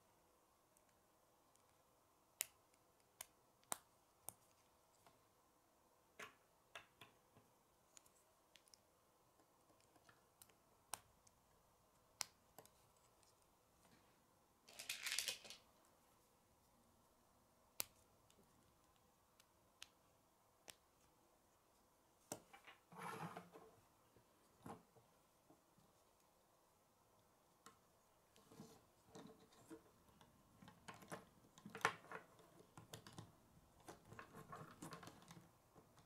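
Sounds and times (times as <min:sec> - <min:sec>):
loose plastic pieces rattling: 0:14.7 - 0:15.6.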